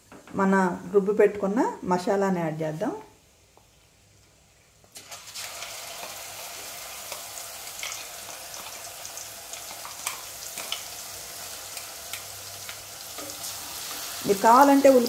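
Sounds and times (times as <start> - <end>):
paste sizzling in hot oil: 4.9 - 15.0.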